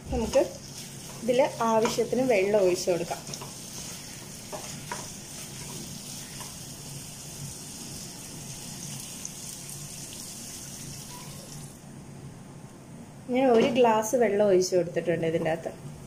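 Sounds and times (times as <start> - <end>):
meat sizzling in a pan: 0.1 - 11.8
wooden spatula tapping: 1.2 - 2.3, 4.5 - 5.2.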